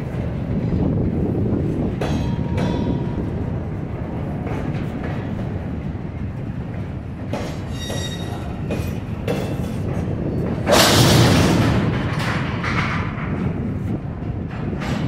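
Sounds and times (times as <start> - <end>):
train cars clanking: 0.0 - 15.0
train wheels rumbling on rail: 0.0 - 15.0
faint wheel squeal: 7.7 - 8.5.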